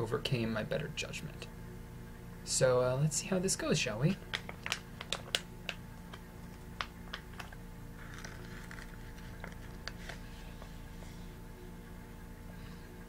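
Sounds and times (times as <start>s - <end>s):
plastic pouch crackling: 4.1s - 10.3s.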